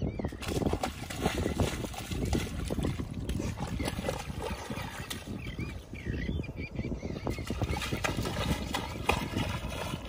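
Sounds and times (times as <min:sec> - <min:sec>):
paws digging in wet mud: 0:00.4 - 0:05.5, 0:07.5 - 0:10.0.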